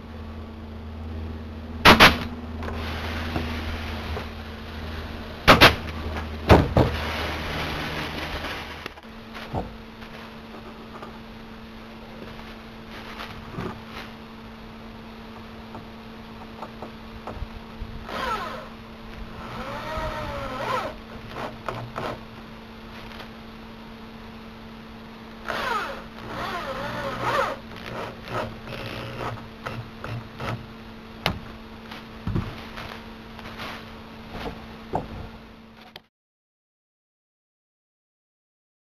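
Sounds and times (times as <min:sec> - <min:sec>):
steady low hum: 0:00.0 - 0:36.0
electric drill driving screws: 0:18.1 - 0:18.7, 0:19.3 - 0:22.2, 0:25.4 - 0:30.6
knocks and clicks of wood: 0:34.4 - 0:35.3.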